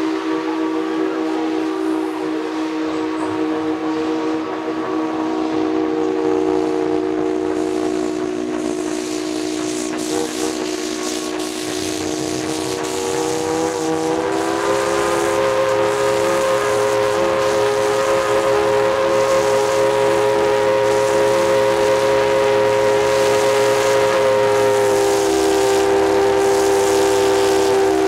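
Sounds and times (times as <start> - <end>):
steam locomotive whistle: 0.0 - 28.0
hiss of steam: 7.5 - 28.0.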